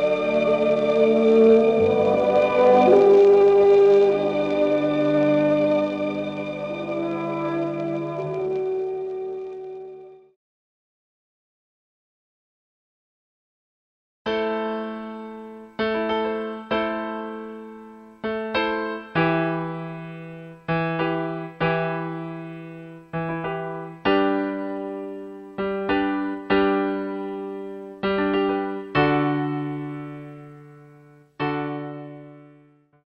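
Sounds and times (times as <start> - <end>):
slow solo piano: 14.3 - 32.8.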